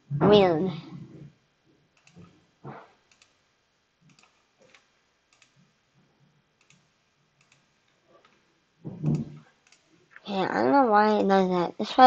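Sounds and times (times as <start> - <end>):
computer mouse clicks: 2.0 - 2.4, 3.1 - 3.4, 4.1 - 5.6, 6.6 - 8.4, 9.0 - 9.9.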